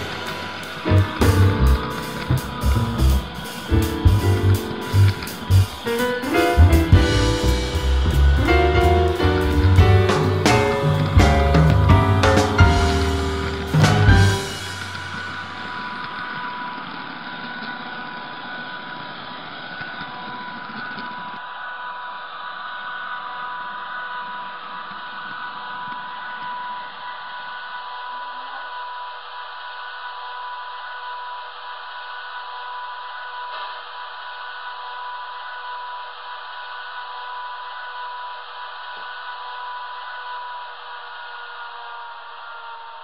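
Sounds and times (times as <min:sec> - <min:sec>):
low running rumble: 0:00.0 - 0:16.7
model train electrical whine: 0:00.0 - 0:43.0.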